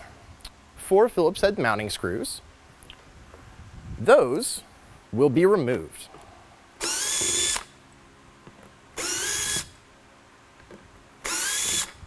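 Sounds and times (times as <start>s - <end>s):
cordless drill whining: 6.8s - 7.7s, 9.0s - 9.8s, 11.2s - 12.0s.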